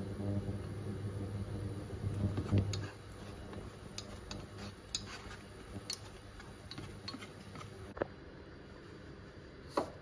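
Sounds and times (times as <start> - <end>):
chopsticks scraping a cooking pot: 2.3 - 8.0.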